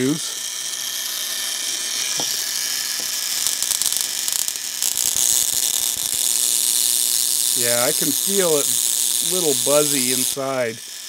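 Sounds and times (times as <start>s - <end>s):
high-voltage zapper buzzing: 0.0s - 11.0s
crackle of electrical discharge: 2.1s - 10.8s.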